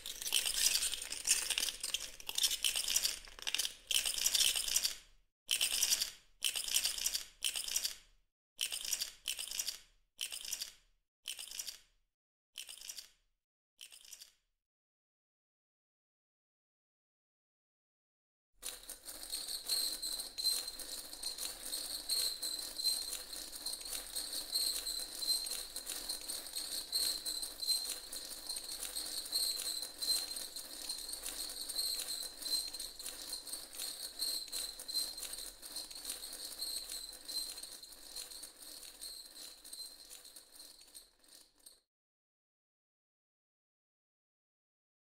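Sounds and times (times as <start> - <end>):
dominoes toppling clatter: 0.0 - 5.0, 5.6 - 8.0, 8.6 - 11.9, 12.6 - 13.2, 13.8 - 14.3, 18.7 - 41.8.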